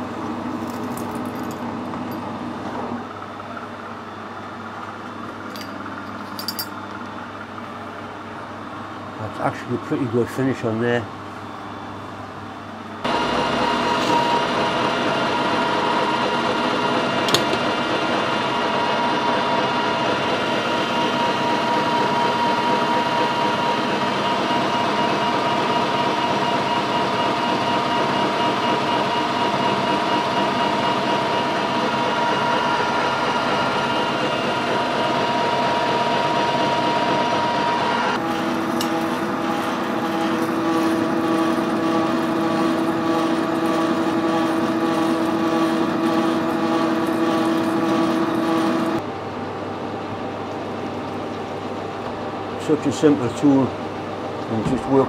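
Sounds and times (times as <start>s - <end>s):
motor whine: 13.0s - 49.0s
lathe cutting noise: 13.1s - 49.0s
metal lathe running: 13.1s - 49.0s.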